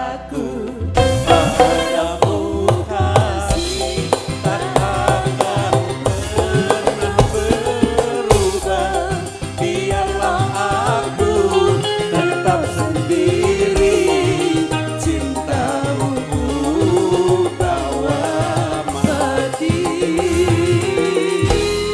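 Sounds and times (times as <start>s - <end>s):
woman and man singing duet: 0.0s - 21.9s
keyboard and drums: 0.7s - 21.9s.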